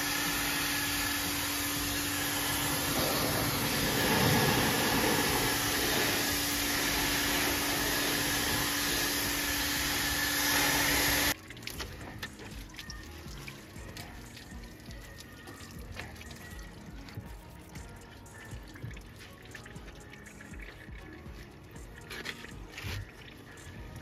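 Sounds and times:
water jet hissing on metal: 0:00.0 - 0:11.4
pressure washer motor humming: 0:00.0 - 0:12.6.

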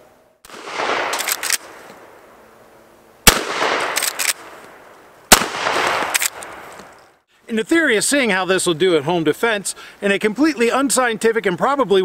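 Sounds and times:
shotgun firing: 0:00.5 - 0:01.7, 0:03.3 - 0:04.5, 0:05.3 - 0:06.7.

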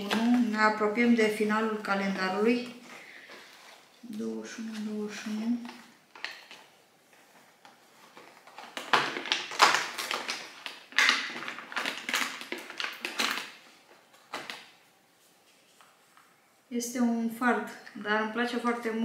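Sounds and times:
cardboard tearing: 0:08.0 - 0:13.4.

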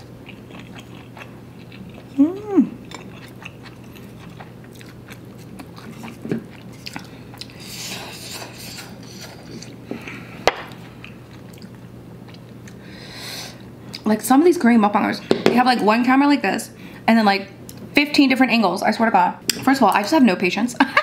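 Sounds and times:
person chewing noodles: 0:00.0 - 0:12.8
faint steady hum: 0:00.0 - 0:21.0.

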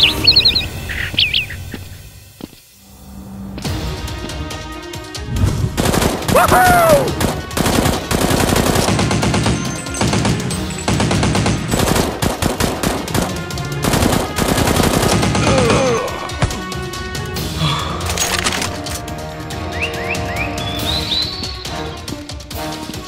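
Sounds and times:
background music: 0:00.0 - 0:23.0
automatic gunfire bursts: 0:05.8 - 0:15.8.

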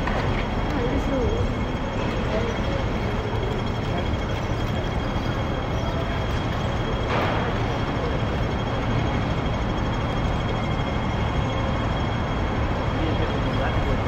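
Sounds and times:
city street traffic: 0:00.0 - 0:14.0.

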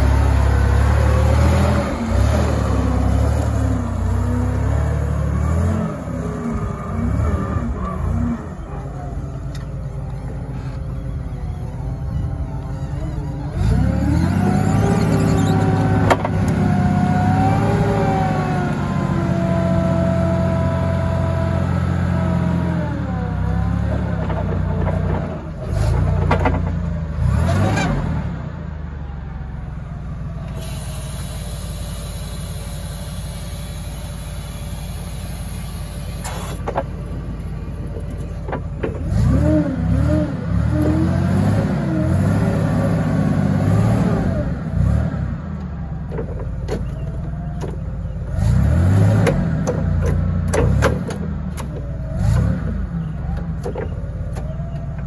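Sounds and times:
forklift engine idling and revving: 0:00.0 - 0:55.0
hydraulic whine: 0:06.4 - 0:18.8, 0:30.4 - 0:39.5.

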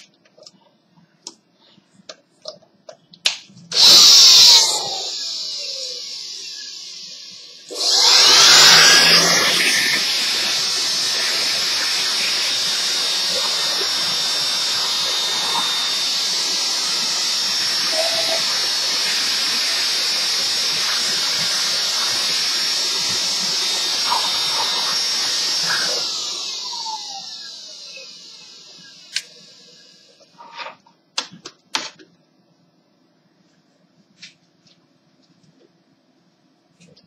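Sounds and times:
electric air blower hissing: 0:03.7 - 0:30.2
blower winding down whine: 0:03.7 - 0:30.3.

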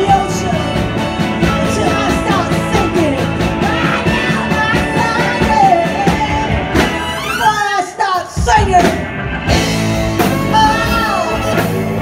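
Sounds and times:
woman belting lead vocal: 0:00.0 - 0:09.0
live rock band playing: 0:00.0 - 0:12.0.

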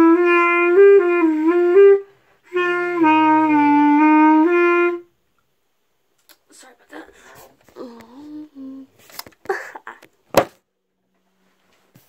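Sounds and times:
girl humming: 0:06.9 - 0:10.1.

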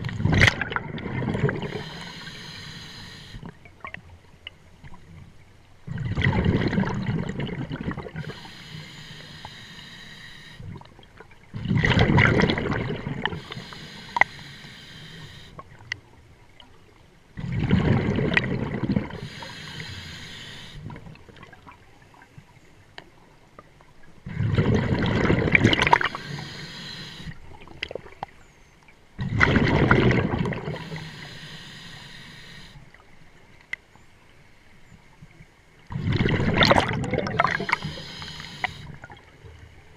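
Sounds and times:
regulator inhalation hiss: 0:01.6 - 0:03.4, 0:08.2 - 0:10.6, 0:13.4 - 0:15.6, 0:19.2 - 0:20.8, 0:25.9 - 0:27.4, 0:30.7 - 0:32.8, 0:37.4 - 0:38.9
bubbling underwater exhalations: 0:05.9 - 0:08.3, 0:11.6 - 0:13.5, 0:17.4 - 0:19.3, 0:24.3 - 0:26.4, 0:29.2 - 0:31.0, 0:35.9 - 0:38.0.

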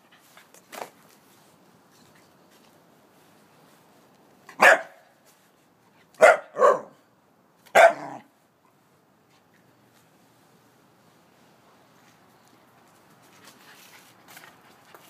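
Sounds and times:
puppy barking: 0:04.5 - 0:05.2, 0:06.2 - 0:07.0, 0:07.7 - 0:08.3.

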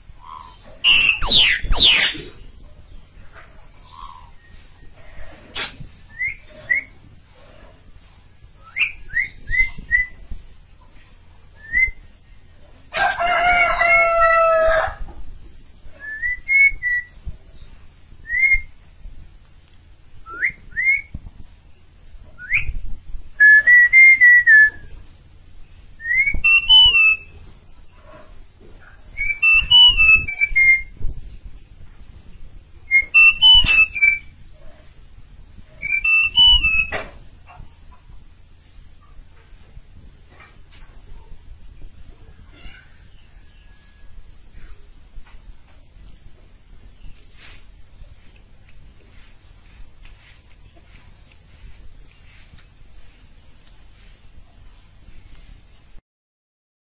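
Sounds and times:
harsh drawn-out bird call: 0:00.2 - 0:02.5
starling singing whistled notes: 0:00.2 - 0:02.6, 0:05.4 - 0:07.0, 0:08.6 - 0:10.2, 0:11.6 - 0:12.1, 0:16.0 - 0:17.2, 0:18.2 - 0:18.7, 0:20.3 - 0:21.2, 0:22.4 - 0:22.8, 0:23.4 - 0:24.9, 0:26.0 - 0:27.4, 0:29.0 - 0:31.0, 0:32.9 - 0:34.4, 0:35.8 - 0:37.1.

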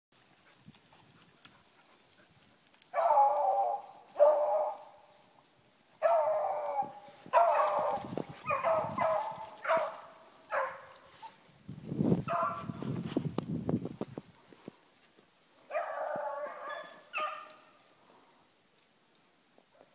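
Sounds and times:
footsteps through undergrowth: 0:00.1 - 0:19.9
hounds baying: 0:00.4 - 0:05.4, 0:06.0 - 0:11.5, 0:12.2 - 0:12.9, 0:15.6 - 0:17.9.

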